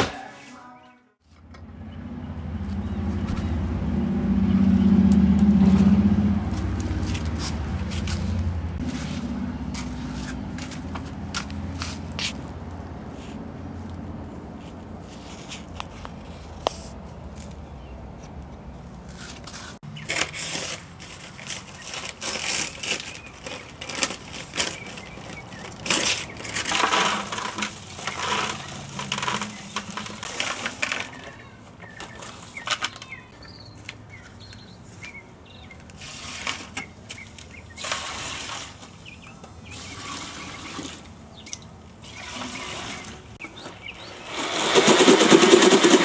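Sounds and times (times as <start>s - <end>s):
paper sack rustling and crinkling: 19.2s - 33.2s.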